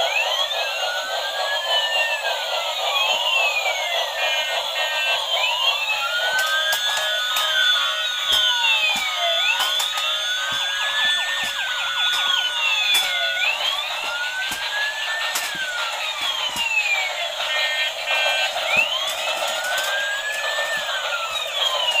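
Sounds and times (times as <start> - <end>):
toy siren wails: 0.0 - 22.0.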